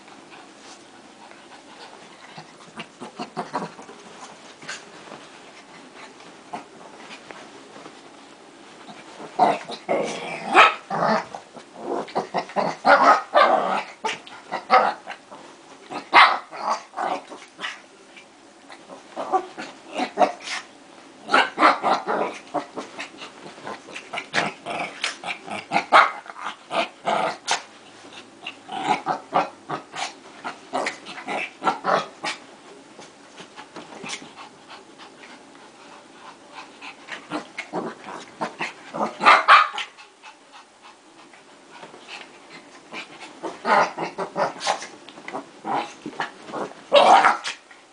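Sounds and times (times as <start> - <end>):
dogs growling and snarling: 1.7 - 4.9, 8.8 - 17.8, 18.7 - 32.4, 36.3 - 41.1, 41.7 - 47.7.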